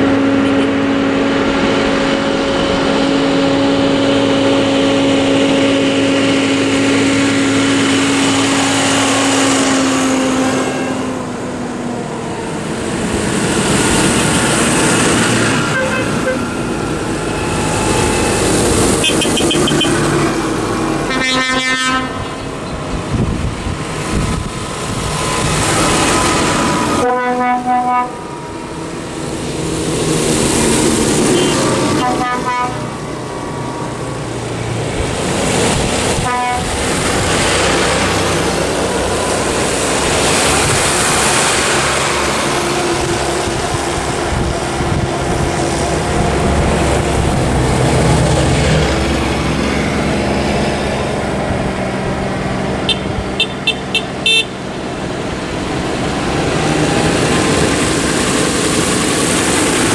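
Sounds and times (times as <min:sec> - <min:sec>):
diesel tractors driving past: 0:00.0 - 0:59.9
horn blasts: 0:07.5 - 0:11.3, 0:15.6 - 0:16.6, 0:17.4 - 0:20.4, 0:21.0 - 0:22.4, 0:27.0 - 0:28.8, 0:31.2 - 0:33.0, 0:36.2 - 0:36.7, 0:52.9 - 0:54.6
short honks: 0:15.7 - 0:16.4, 0:19.0 - 0:20.1, 0:27.0 - 0:28.2, 0:31.3 - 0:32.8, 0:52.9 - 0:54.5.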